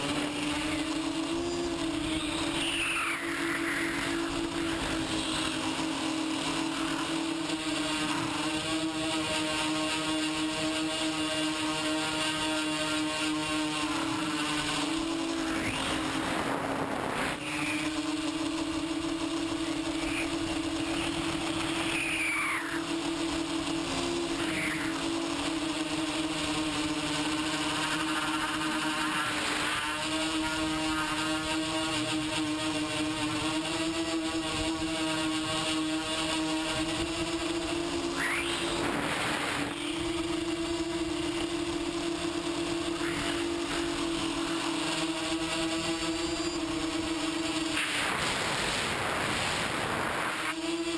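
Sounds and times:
drone propellers whining: 0:00.0 - 0:50.9
quadcopter motors buzzing: 0:00.0 - 0:50.9
steady hiss: 0:42.4 - 0:50.6.

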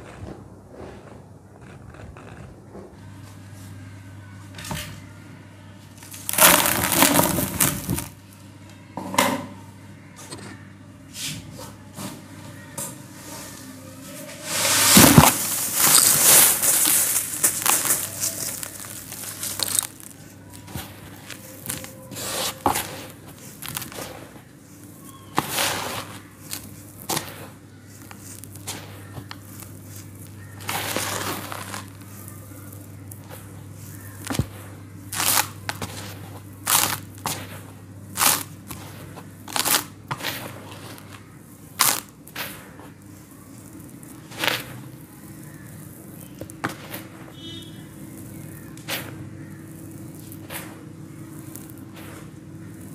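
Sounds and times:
hands crumbling crunchy sand: 0:06.1 - 0:08.2, 0:14.4 - 0:52.9
sand pouring into plastic bucket: 0:06.2 - 0:08.1, 0:14.3 - 0:34.6, 0:35.2 - 0:47.4, 0:48.1 - 0:52.9.

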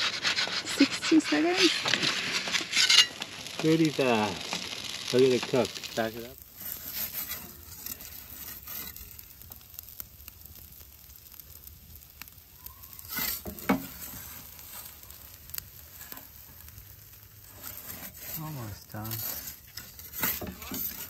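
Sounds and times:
wood fire hissing and crackling: 0:00.0 - 0:21.0.

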